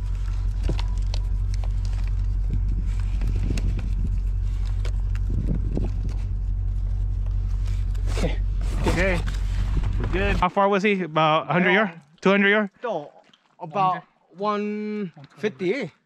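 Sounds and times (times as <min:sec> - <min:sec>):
paper and plastic rustling: 0:00.0 - 0:10.4
low steady rumble: 0:00.0 - 0:10.5.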